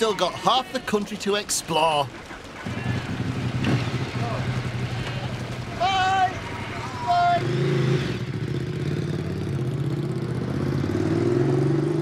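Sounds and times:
vehicle engine pulling away: 0:02.6 - 0:12.0.

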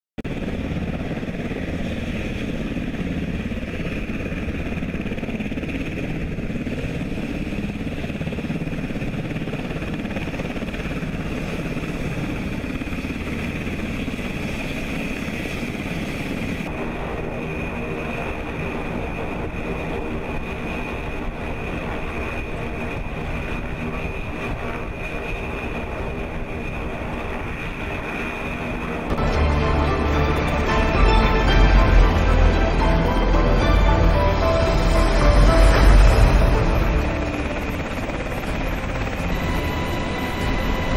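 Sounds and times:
engine drone: 0:28.6 - 0:40.9
high whine: 0:29.1 - 0:40.9.

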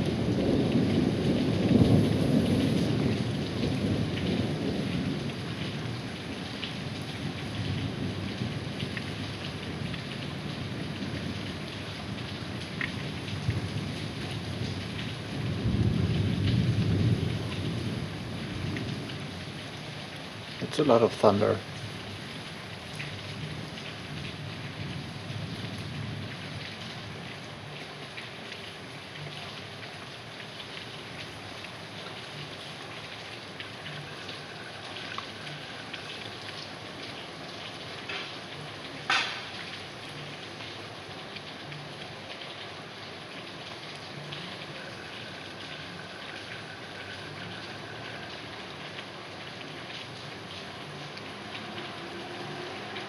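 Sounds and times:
thunder rumbling: 0:00.0 - 0:19.6
heavy rain falling: 0:00.0 - 0:53.0.

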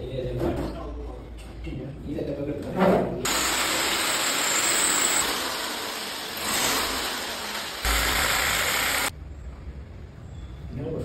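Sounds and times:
electric drill boring into wall: 0:03.3 - 0:09.1.

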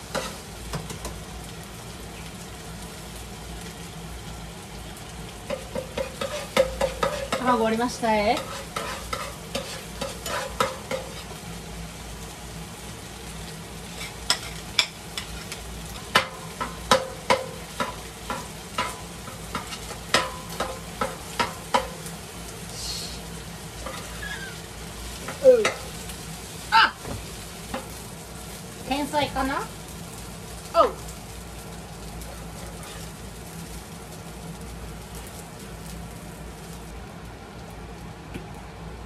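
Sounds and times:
metal spatula scraping grill pan: 0:00.0 - 0:01.0, 0:05.5 - 0:11.4, 0:13.4 - 0:22.1, 0:23.7 - 0:26.0, 0:32.2 - 0:33.4
food sizzling: 0:00.0 - 0:39.0.

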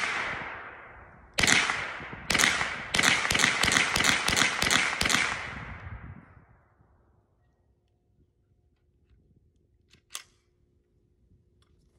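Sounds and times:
rifle shots echoing: 0:00.0 - 0:06.2.

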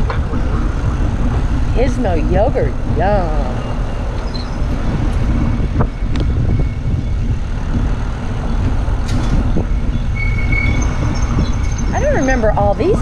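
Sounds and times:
tyre and road noise: 0:00.0 - 0:13.0
wind rumbling on microphone: 0:00.0 - 0:13.0.

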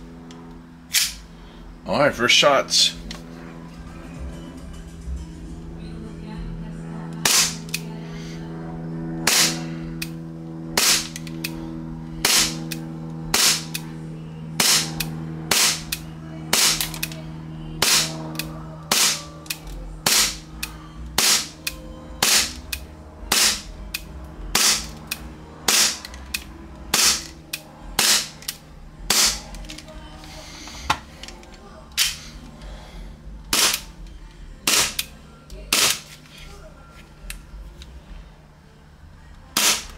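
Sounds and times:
airsoft pistol shots: 0:07.2 - 0:07.6, 0:09.2 - 0:09.7, 0:10.8 - 0:11.2, 0:12.2 - 0:12.7, 0:13.3 - 0:13.7, 0:14.6 - 0:15.9, 0:16.5 - 0:17.0, 0:17.8 - 0:18.1, 0:18.9 - 0:19.3, 0:20.0 - 0:20.4, 0:21.2 - 0:21.5, 0:22.2 - 0:22.6, 0:23.3 - 0:23.7, 0:24.5 - 0:24.9, 0:25.7 - 0:26.0, 0:26.9 - 0:27.3, 0:28.0 - 0:28.3, 0:29.1 - 0:29.4, 0:33.5 - 0:33.9, 0:34.6 - 0:35.0, 0:39.6 - 0:39.9.

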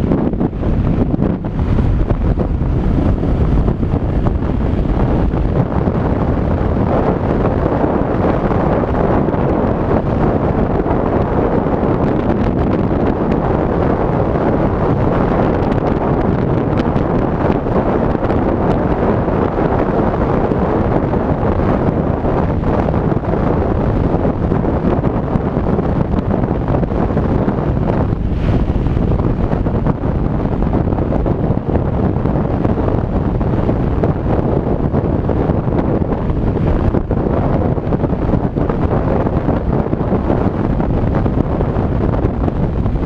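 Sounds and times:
motorcycle engine running: 0:00.0 - 0:13.4
wind buffeting microphone: 0:00.0 - 0:43.0.

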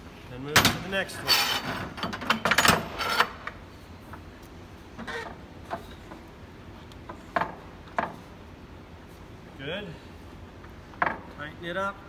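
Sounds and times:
knocks and clicks of clamps and boards: 0:00.6 - 0:00.8, 0:01.7 - 0:03.6, 0:07.0 - 0:08.2, 0:10.9 - 0:11.4.

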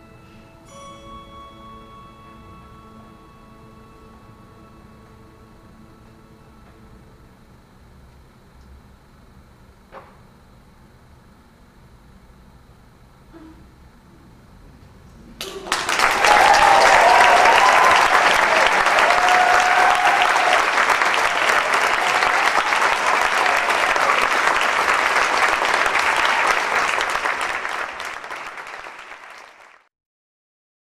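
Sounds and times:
audience applause: 0:15.4 - 0:29.9.

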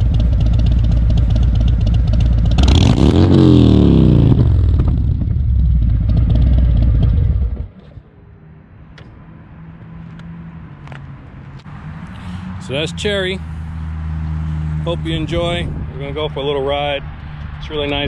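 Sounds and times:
motorcycle engine revving to idle: 0:00.0 - 0:07.7.

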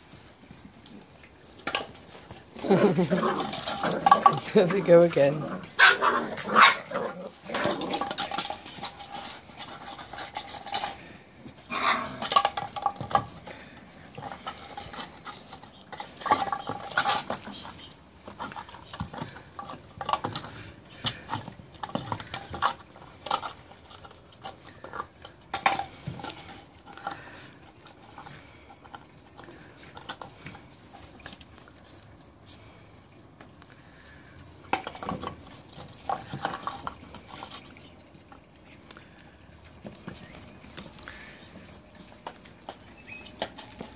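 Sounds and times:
plastic toy clattering on concrete: 0:01.6 - 0:05.5, 0:06.4 - 0:11.2, 0:12.1 - 0:28.4, 0:34.7 - 0:37.8.

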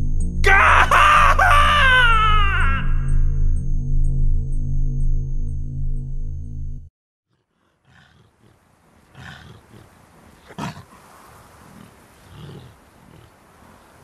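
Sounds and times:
wolves growling: 0:07.3 - 0:13.7.

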